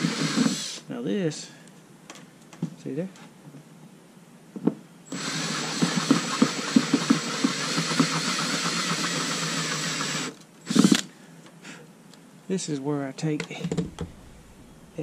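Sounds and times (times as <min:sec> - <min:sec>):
cordless drill boring into plastic: 0:00.0 - 0:00.8, 0:05.1 - 0:11.1.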